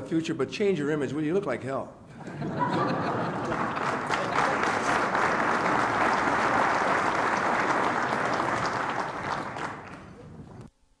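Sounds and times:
audience applauding: 2.6 - 10.6.

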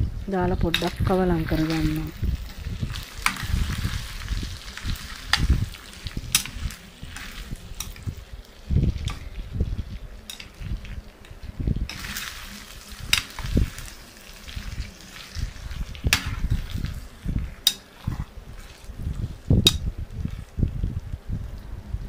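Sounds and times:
meat sizzling in a pan: 0.6 - 21.0
spoon scraping pan: 0.7 - 8.3, 10.1 - 20.5
metal spoon clinking on pan: 10.3 - 10.6, 17.6 - 17.9.

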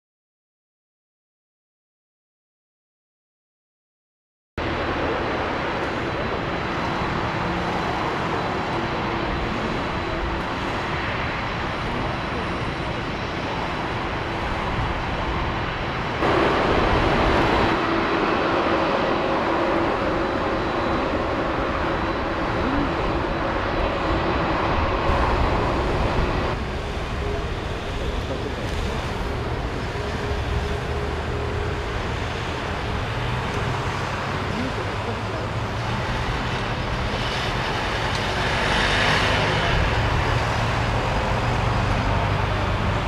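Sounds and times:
jet engine rumble with whine: 4.6 - 43.0.

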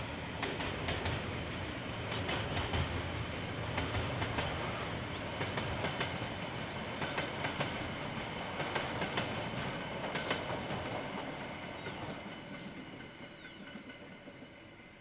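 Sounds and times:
freight train rolling past: 0.0 - 15.0.

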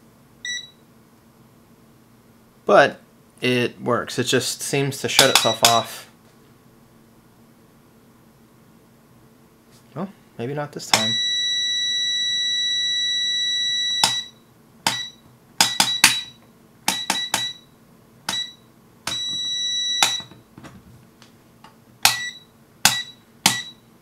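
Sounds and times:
multimeter beeping: 0.4 - 0.8, 10.9 - 17.7, 18.3 - 20.4, 22.0 - 23.9.

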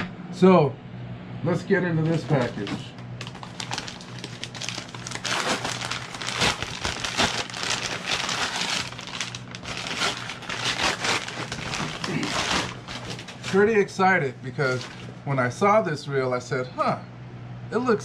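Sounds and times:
paper bag crinkling: 2.0 - 13.8, 14.6 - 15.2.

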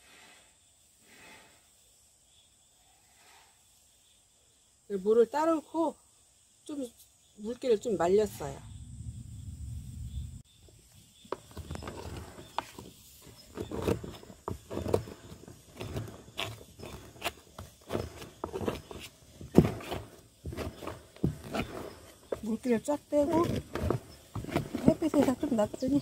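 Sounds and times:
low rumble: 8.6 - 10.4
dried starch crunching: 11.4 - 26.0.

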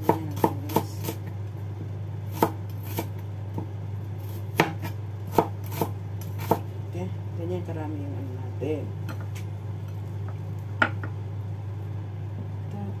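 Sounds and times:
knife chopping on cutting board: 0.0 - 1.2, 2.3 - 6.7.

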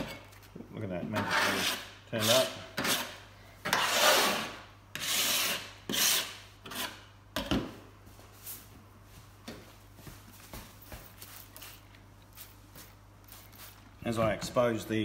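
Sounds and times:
scraper on metal: 1.1 - 7.0.

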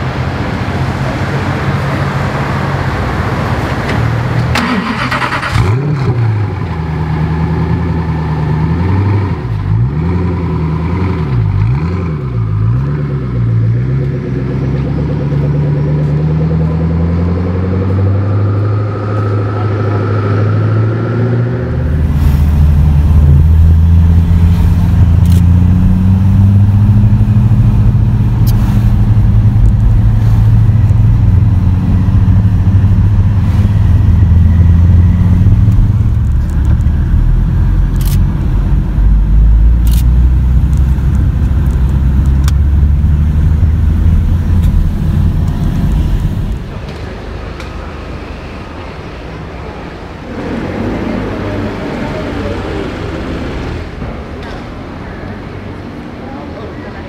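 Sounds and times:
engine and road drone: 0.0 - 57.0
sports car engine revving: 4.5 - 38.3.

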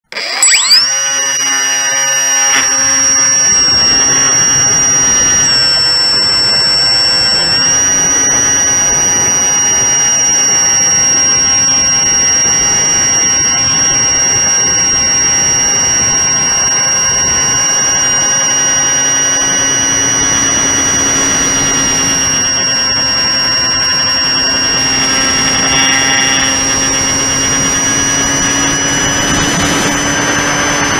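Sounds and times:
electric motor high-pitched whine: 0.0 - 30.9
wind rush: 26.5 - 30.9.

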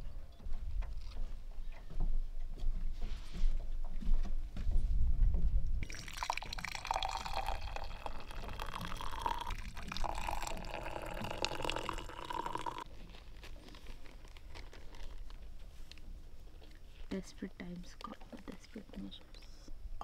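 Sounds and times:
liquid pouring into cups: 5.8 - 12.9.

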